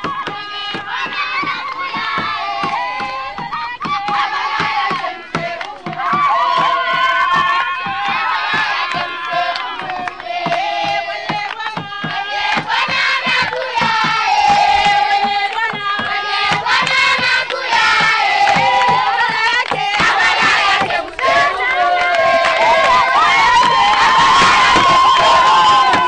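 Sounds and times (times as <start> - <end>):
people shouting: 0.0 - 10.1, 17.6 - 26.0
crowd singing together: 0.0 - 26.0
rhythmic hand clapping: 0.0 - 26.0.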